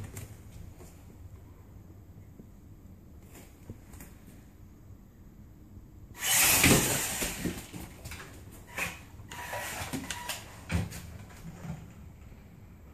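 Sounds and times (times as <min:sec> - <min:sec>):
toy truck motor whirring: 0:06.2 - 0:07.3.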